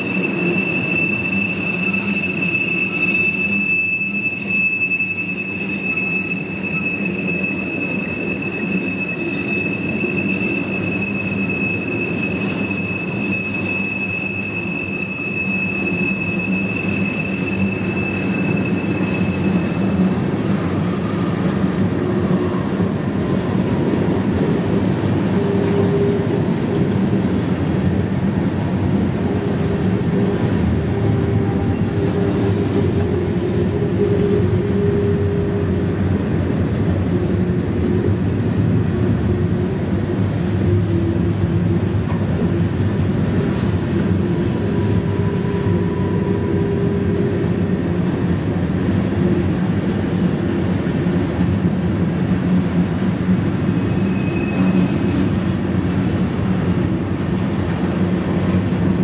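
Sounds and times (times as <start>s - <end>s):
high wheel squeal: 0.0s - 27.6s, 28.9s - 36.1s, 43.3s - 49.0s, 53.5s - 55.9s
lower wheel squeal tones: 0.0s - 51.6s, 52.2s - 59.0s
train wheels rumbling on rails: 0.0s - 59.0s.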